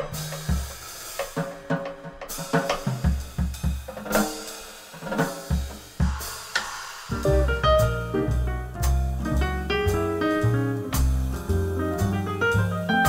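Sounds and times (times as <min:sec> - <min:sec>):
snare and cymbal hits: 0:00.0 - 0:13.0
jazz combo music: 0:07.1 - 0:13.0.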